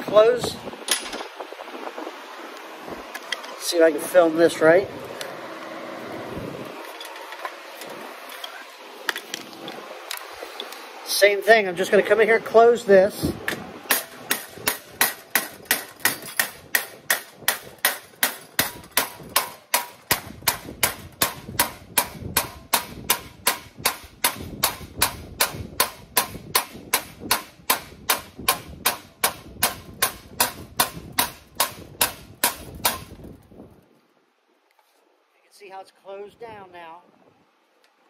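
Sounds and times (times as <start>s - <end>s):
hammer blows on sheet metal: 13.5s - 33.2s.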